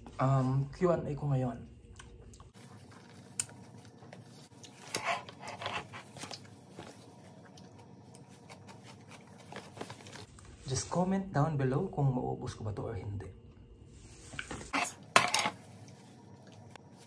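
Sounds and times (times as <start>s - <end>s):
soft chewing clicks: 1.8s - 4.8s.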